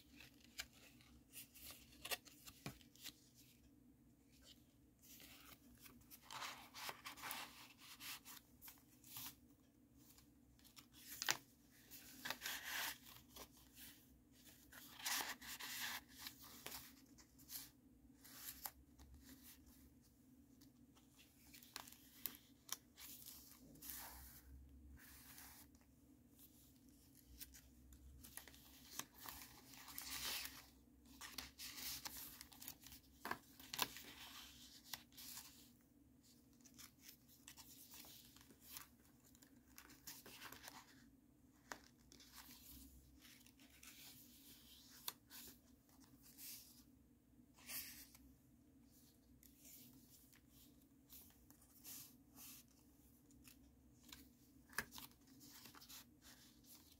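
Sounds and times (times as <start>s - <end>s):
paper and card rustling: 0.0s - 19.9s, 26.5s - 46.9s.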